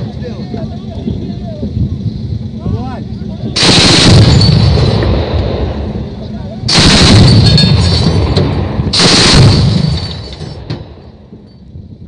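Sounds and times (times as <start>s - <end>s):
rumbling echo: 1.0s - 12.0s
autocannon firing in bursts: 3.6s - 11.3s.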